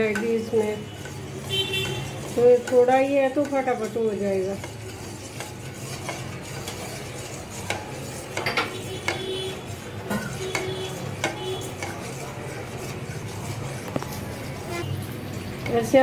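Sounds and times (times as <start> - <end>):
ladle knocking and scraping pan: 0.0 - 14.9.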